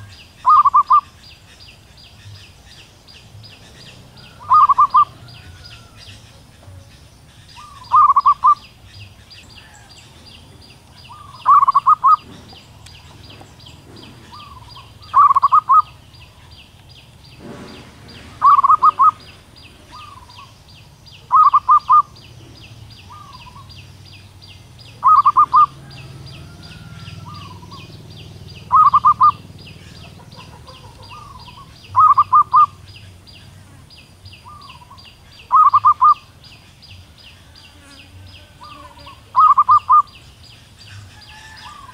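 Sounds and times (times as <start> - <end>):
dove cooing: 0.0 - 1.2, 3.5 - 16.5, 17.4 - 20.6, 21.2 - 23.8, 24.9 - 33.1, 34.4 - 36.3, 38.4 - 40.2.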